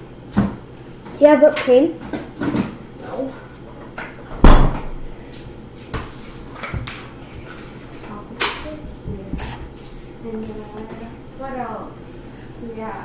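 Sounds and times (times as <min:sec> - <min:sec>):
cupboard door knocking shut: 0:04.4 - 0:05.0.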